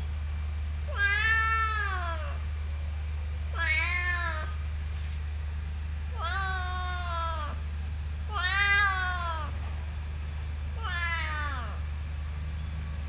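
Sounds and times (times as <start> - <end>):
cat meowing: 0.9 - 2.4, 3.5 - 4.6, 6.1 - 7.6, 8.3 - 9.6, 10.7 - 11.8.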